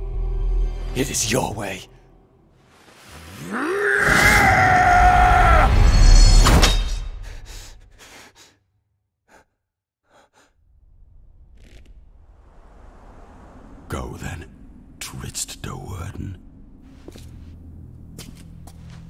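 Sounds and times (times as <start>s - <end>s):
deep rumble: 10.5s - 19.0s.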